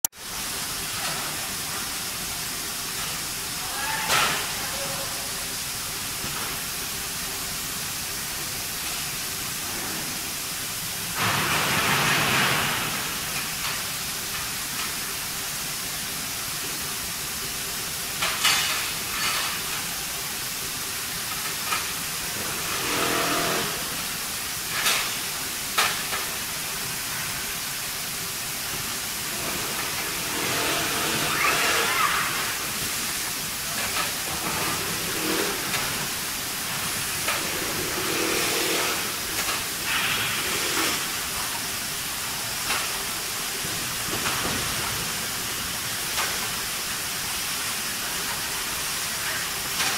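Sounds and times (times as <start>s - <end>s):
machinery hissing: 0.2s - 49.9s
burst of hissing air: 22.1s - 43.4s.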